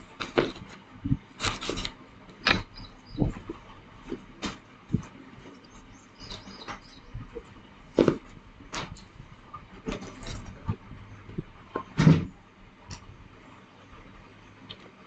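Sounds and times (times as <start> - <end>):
hands rolling clay on wood: 0.0 - 9.0.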